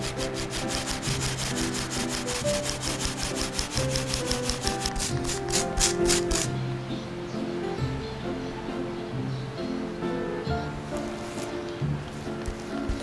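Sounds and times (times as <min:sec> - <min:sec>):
sugar shaken through sieve: 0:00.0 - 0:06.5.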